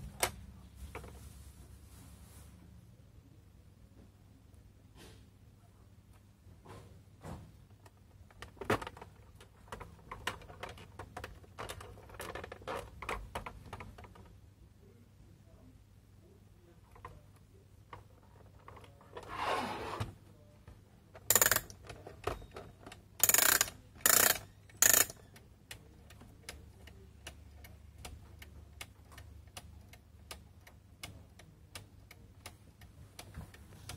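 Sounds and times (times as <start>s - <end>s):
plastic knocks and clicks: 7.3s - 14.3s
clock pendulum ticking: 21.3s - 21.8s, 22.9s - 33.9s.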